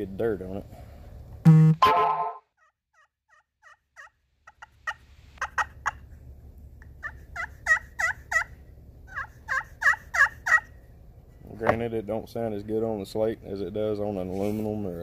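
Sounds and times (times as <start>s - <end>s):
turkey call yelps: 1.8s - 6.1s, 6.8s - 10.8s.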